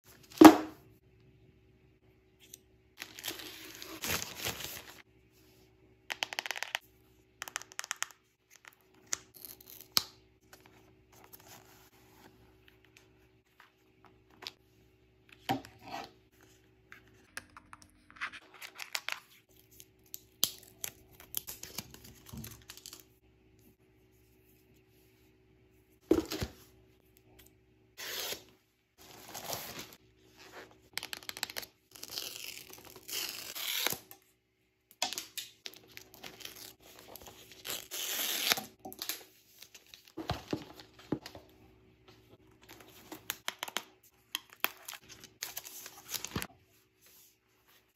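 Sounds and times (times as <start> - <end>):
plastic packaging tearing and crinkling: 31.2 - 34.0.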